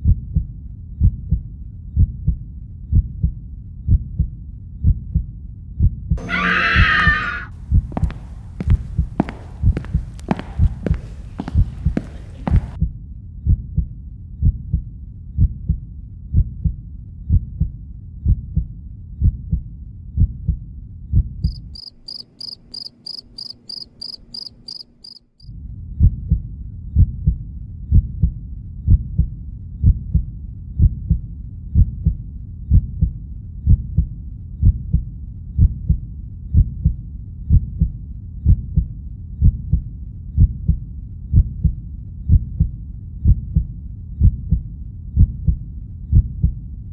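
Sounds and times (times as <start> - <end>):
heartbeat thumps: 0.0 - 6.2, 7.6 - 25.4, 26.0 - 46.9
rapid high chirping: 21.5 - 25.3.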